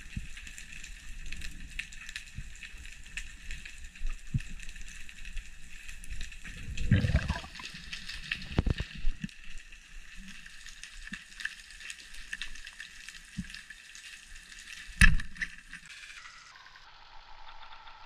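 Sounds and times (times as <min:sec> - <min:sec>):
underwater fine crackle: 0:00.0 - 0:18.0.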